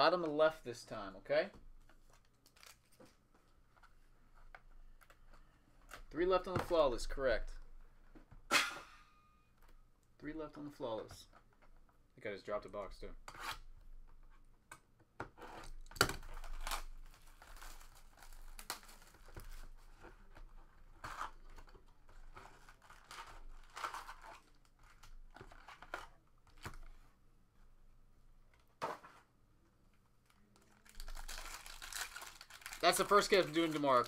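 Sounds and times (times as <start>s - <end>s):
wrapper tearing and crinkling: 2.4s - 2.9s, 15.8s - 19.7s, 22.6s - 25.9s, 30.6s - 34.0s.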